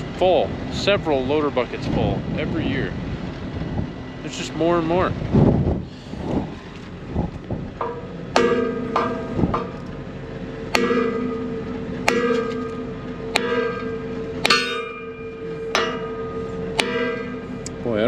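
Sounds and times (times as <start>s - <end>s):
hammer striking ringing steel blades: 7.8s - 9.8s, 10.7s - 17.8s.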